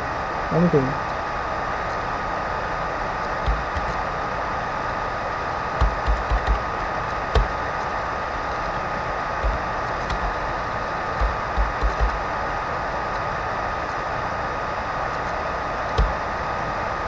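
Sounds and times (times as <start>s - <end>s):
steady hiss: 0.0s - 17.0s
keyboard keystrokes: 3.4s - 4.0s, 5.8s - 6.7s, 7.3s - 7.6s, 9.4s - 10.4s, 11.2s - 12.2s, 16.0s - 16.2s.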